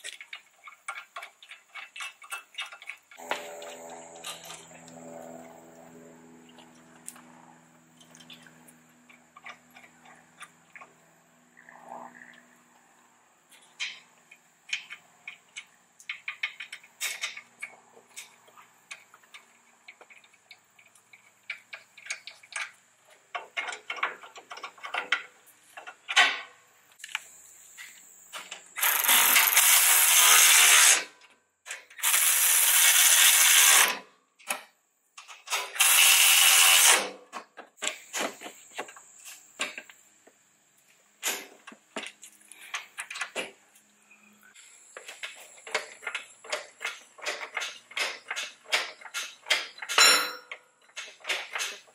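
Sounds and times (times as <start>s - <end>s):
hand tools clicking on metal: 0.0s - 5.0s, 13.5s - 26.3s, 44.5s - 51.9s
cordless power tool bursts: 28.8s - 31.1s, 32.0s - 34.0s, 35.6s - 37.2s.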